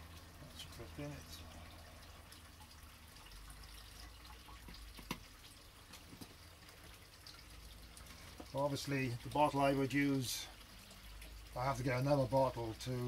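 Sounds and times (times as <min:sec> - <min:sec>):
water dripping into bottle: 0:00.0 - 0:08.6.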